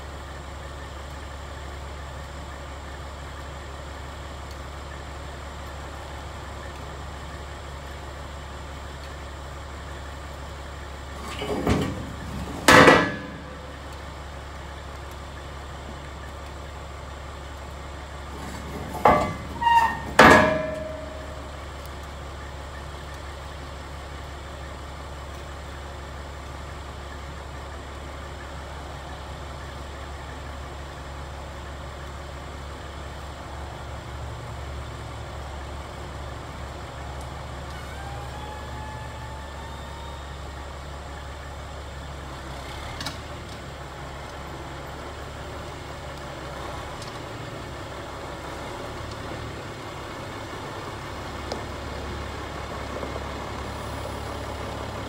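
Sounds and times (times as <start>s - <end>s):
engine idling: 0.0s - 55.0s
metal ramp clanging: 11.2s - 13.7s, 18.4s - 21.5s.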